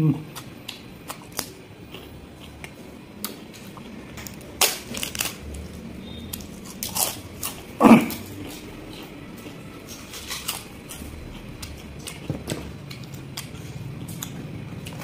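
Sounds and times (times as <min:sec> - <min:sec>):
eating noises: 0:00.2 - 0:15.0
papad snapping and crunching: 0:04.2 - 0:05.4.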